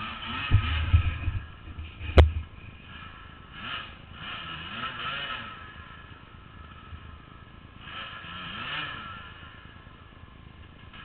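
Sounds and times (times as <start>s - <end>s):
dirt bike engine revving: 0.0s - 10.1s, 10.8s - 11.0s.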